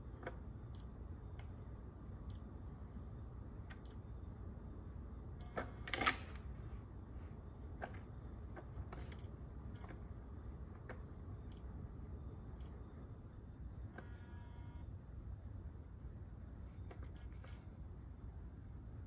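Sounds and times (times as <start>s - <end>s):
high bird-like chirps: 0.7s - 1.0s, 2.2s - 2.6s, 3.8s - 4.2s, 9.0s - 10.0s, 11.4s - 11.8s, 12.6s - 13.0s, 17.1s - 17.8s.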